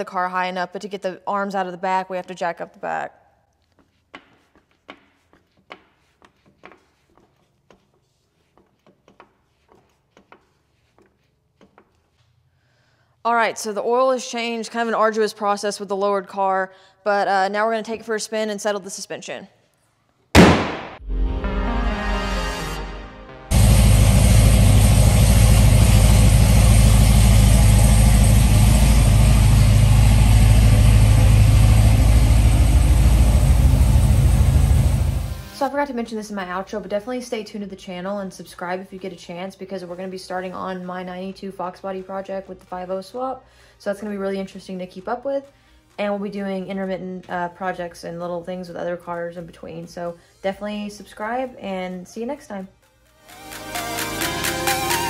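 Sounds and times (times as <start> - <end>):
car engine running: 23.5 - 35.5.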